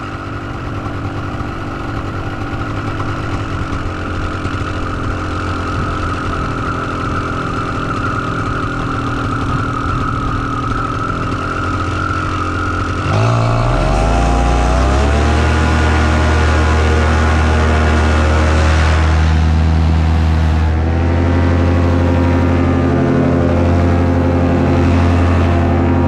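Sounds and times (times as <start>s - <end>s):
paramotor engine and propeller: 0.0s - 26.0s.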